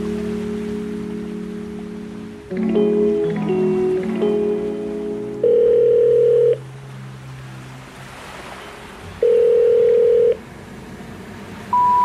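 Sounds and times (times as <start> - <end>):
telephone ringback beep: 5.4 - 6.6, 9.2 - 10.4, 11.8 - 12.0.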